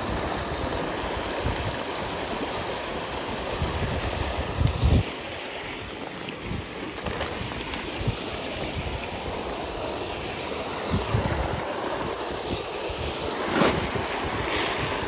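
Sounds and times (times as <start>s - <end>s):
water splashing from pipe into pond: 0.0s - 15.0s
wind buffeting microphone: 3.4s - 5.1s, 6.4s - 15.0s.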